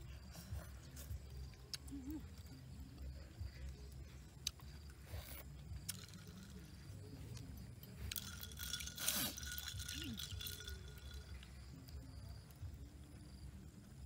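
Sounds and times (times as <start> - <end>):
spoon clinking against glass: 5.9 - 11.8.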